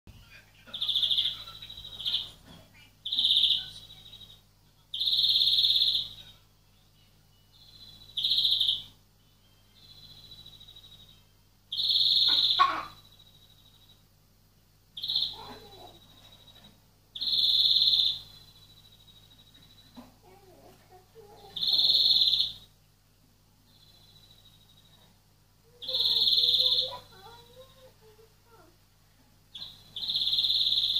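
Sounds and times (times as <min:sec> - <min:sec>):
low electrical hum: 0:00.1 - 0:30.9
finch calling high notes: 0:11.8 - 0:13.1, 0:25.8 - 0:27.9.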